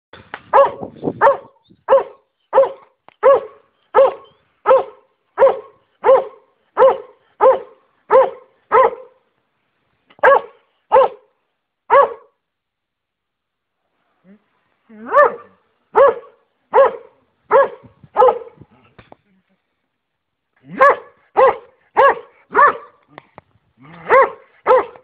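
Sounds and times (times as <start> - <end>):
hound barking: 0.5 - 9.2, 10.2 - 11.3, 11.9 - 12.4, 15.0 - 18.6, 20.7 - 23.0, 23.9 - 25.0.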